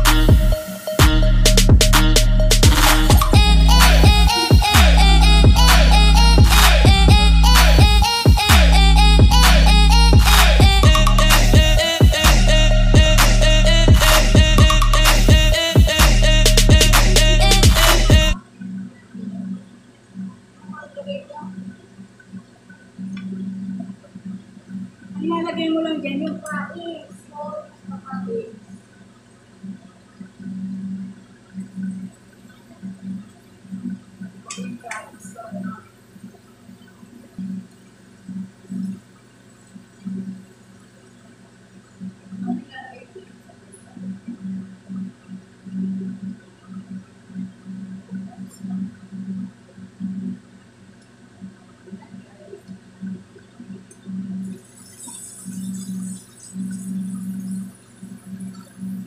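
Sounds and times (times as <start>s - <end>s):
low hum: 0.0s - 20.8s.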